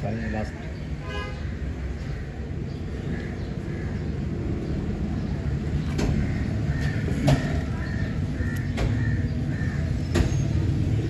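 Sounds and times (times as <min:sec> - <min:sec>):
sharp knocks: 0:06.0 - 0:07.8, 0:08.6 - 0:09.2, 0:10.1 - 0:10.6.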